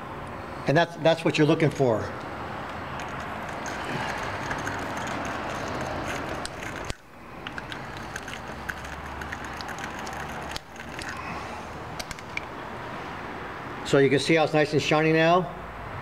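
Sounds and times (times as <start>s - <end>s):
brush scraping metal clamp: 2.7s - 8.7s.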